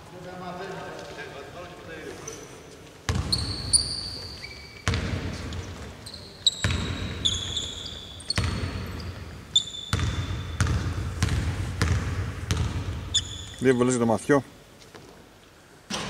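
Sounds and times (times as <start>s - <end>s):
sneaker squeaks: 2.2s - 13.7s
basketball bouncing on court: 3.1s - 13.6s.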